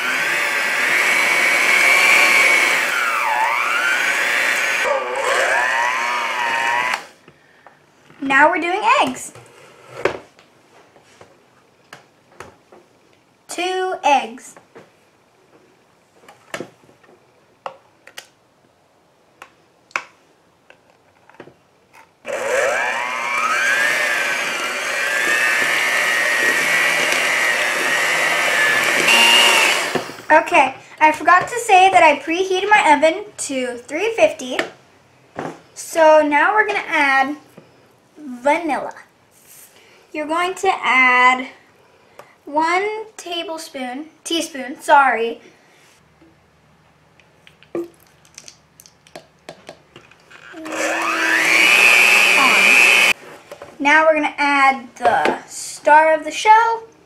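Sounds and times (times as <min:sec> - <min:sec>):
electric mixer motor whining: 0:00.0 - 0:07.1, 0:22.3 - 0:30.3, 0:50.5 - 0:53.2.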